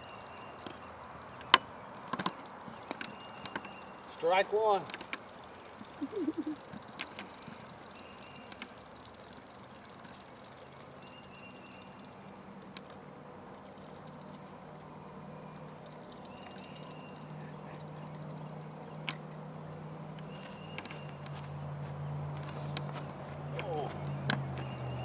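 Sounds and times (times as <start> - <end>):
fishing reel whirring: 2.8 - 13.0.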